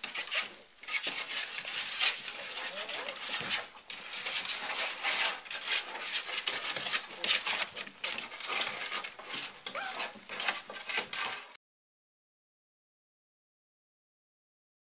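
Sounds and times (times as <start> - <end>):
puppies rustling in straw: 0.0 - 11.6
puppies whimpering: 2.2 - 3.3, 9.7 - 10.2.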